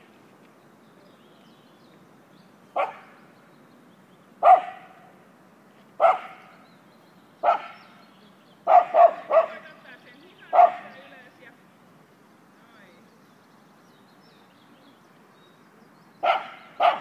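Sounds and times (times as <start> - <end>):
dog barking: 2.8 - 3.1, 4.4 - 5.0, 6.0 - 6.5, 7.4 - 7.8, 8.7 - 9.6, 10.5 - 11.0, 16.2 - 17.0.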